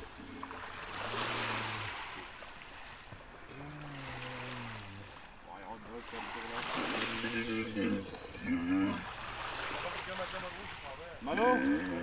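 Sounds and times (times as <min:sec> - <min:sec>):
camel moaning: 0:06.8 - 0:09.4, 0:11.2 - 0:12.0.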